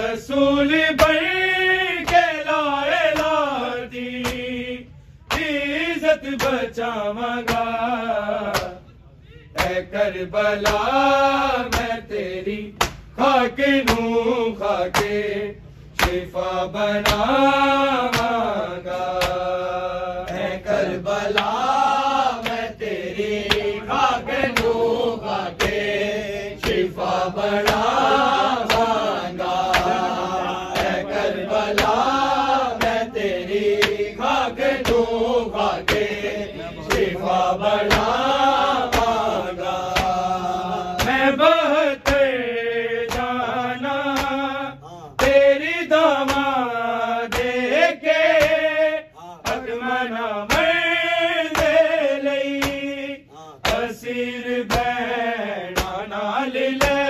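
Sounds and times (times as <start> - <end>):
men chanting a lament: 0.0 - 57.0.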